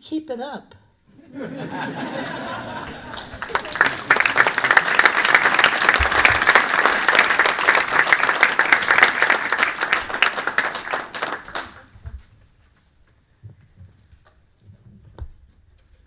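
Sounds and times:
small audience applauding: 0:02.1 - 0:12.1.

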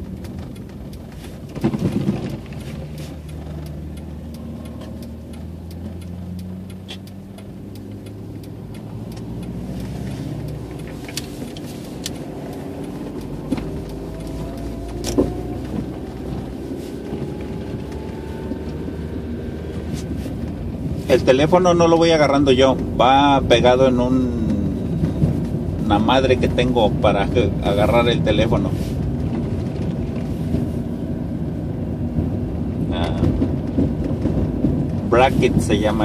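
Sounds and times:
sharp clicks: 0:00.0 - 0:16.5
car engine running: 0:00.0 - 0:36.0
tyre and road noise: 0:00.0 - 0:36.0
rising tone: 0:12.1 - 0:19.8.

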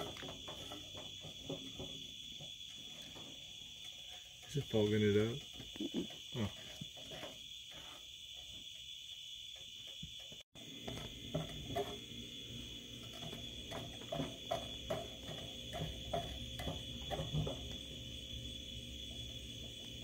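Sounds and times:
crickets chirring: 0:00.0 - 0:20.0
wooden spoon scraping skillet: 0:10.8 - 0:17.9.

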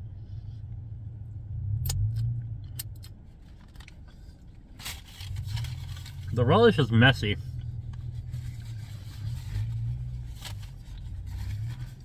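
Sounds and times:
low car cabin hum: 0:00.0 - 0:12.0
rustling of food handling: 0:03.3 - 0:12.0.

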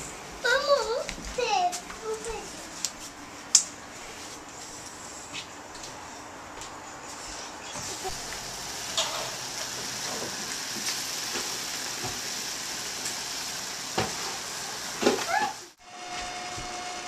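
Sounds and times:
pot of water boiling: 0:07.8 - 0:17.0.

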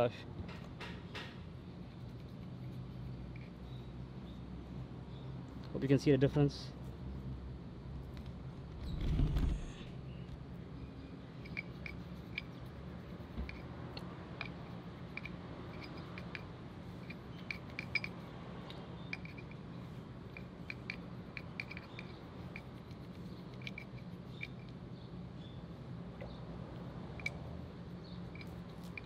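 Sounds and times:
steady low hum: 0:00.2 - 0:29.0
toothbrush ticks and clicks: 0:11.4 - 0:18.2, 0:20.3 - 0:24.8, 0:28.3 - 0:29.0.

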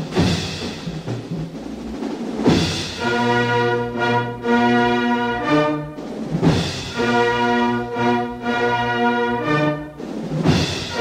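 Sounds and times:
drum hit: 0:00.0 - 0:03.1, 0:06.1 - 0:07.1, 0:10.2 - 0:11.0
orchestral music: 0:00.0 - 0:11.0
held brass chords: 0:02.7 - 0:11.0.

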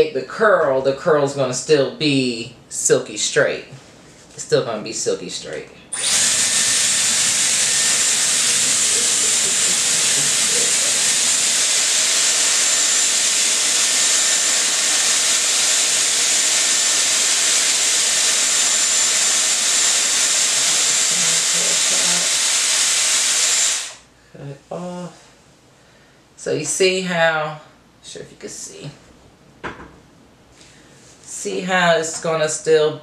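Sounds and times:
hair styler air rush and whine: 0:05.9 - 0:24.1.

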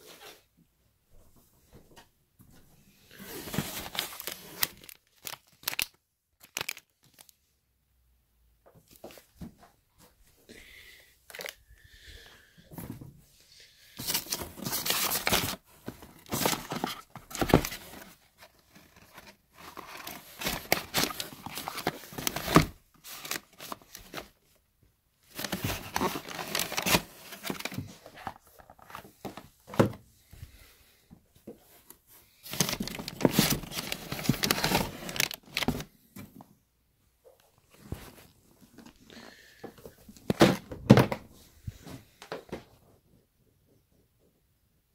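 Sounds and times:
plastic and paper crinkling: 0:03.1 - 0:07.4, 0:11.3 - 0:11.6, 0:14.0 - 0:24.6, 0:25.2 - 0:29.9, 0:31.7 - 0:35.9.

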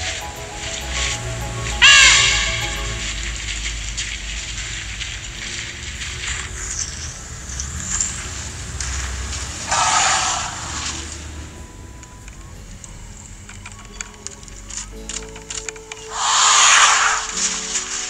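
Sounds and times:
loud rush of noise: 0:00.0 - 0:04.0, 0:08.4 - 0:12.0, 0:16.1 - 0:18.0.

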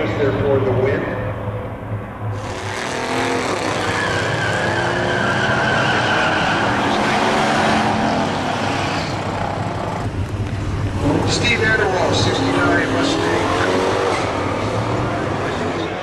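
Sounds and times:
car engines revving: 0:00.0 - 0:16.0
tire squeal: 0:02.4 - 0:09.6.

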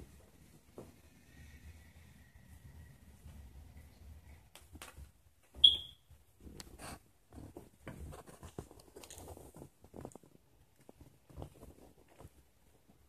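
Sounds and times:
high-pitched squeak: 0:05.6 - 0:06.0
cats scuffling on carpet: 0:06.4 - 0:13.0
paw taps and fur rustles: 0:06.4 - 0:13.0.

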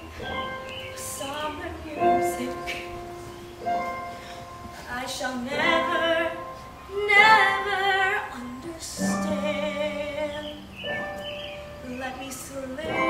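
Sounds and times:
woman singing with vibrato: 0:00.0 - 0:03.4, 0:04.8 - 0:13.0.

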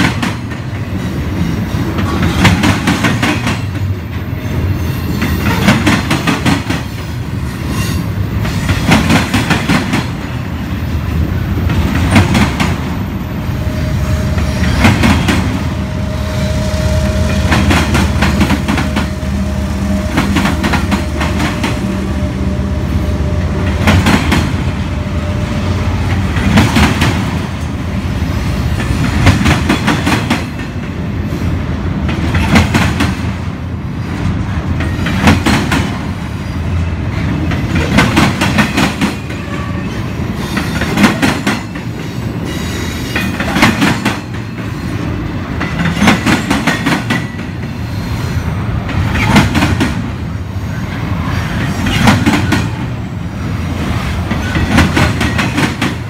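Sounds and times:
diesel locomotive engine whine: 0:00.0 - 0:56.0
train rolling rumble: 0:00.0 - 0:56.0
train wheels clattering over rail joints: 0:23.6 - 0:24.7, 0:26.1 - 0:27.8, 0:28.7 - 0:31.0, 0:32.0 - 0:33.4, 0:34.1 - 0:36.2, 0:37.1 - 0:39.8, 0:40.4 - 0:42.0, 0:43.0 - 0:47.8, 0:48.8 - 0:50.2, 0:51.5 - 0:52.9, 0:54.0 - 0:56.0.

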